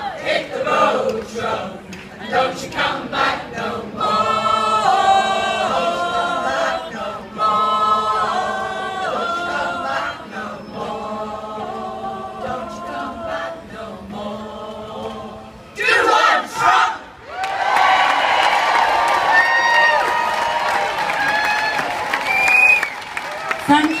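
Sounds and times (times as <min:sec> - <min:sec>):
choir singing unaccompanied: 0:00.0 - 0:17.2
crowd cheering: 0:16.1 - 0:24.0.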